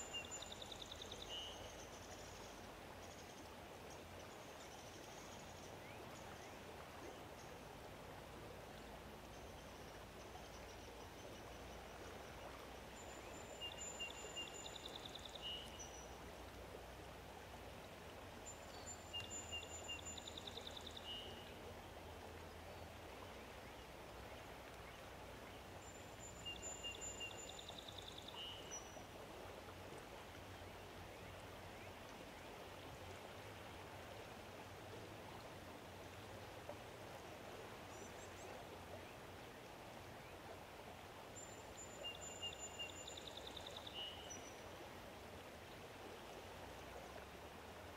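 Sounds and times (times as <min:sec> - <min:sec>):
songbird singing with trill: 0:00.0 - 0:02.0, 0:13.1 - 0:16.1, 0:18.5 - 0:21.5, 0:25.9 - 0:29.0, 0:41.4 - 0:44.6.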